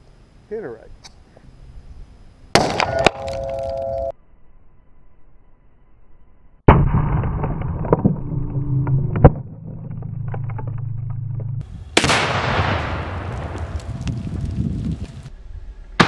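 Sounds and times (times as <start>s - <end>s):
explosion blasts: 6.7s - 9.6s, 11.8s - 15.0s
sharp cracks and rattles: 6.7s - 15.3s.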